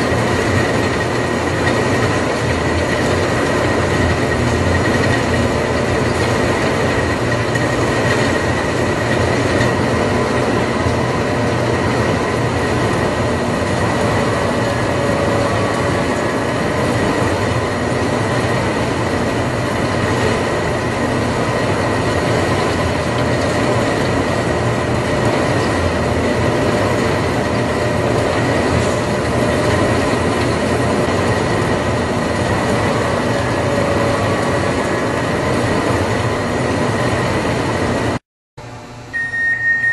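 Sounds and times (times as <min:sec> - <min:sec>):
conveyor belts rumbling: 0:00.0 - 0:39.9
faint high whine: 0:39.0 - 0:39.9.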